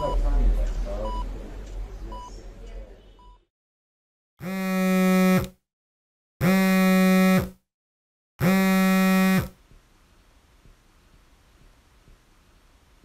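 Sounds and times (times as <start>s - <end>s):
buzzy electronic alarm tone: 4.4s - 5.5s, 6.4s - 7.6s, 8.4s - 9.6s.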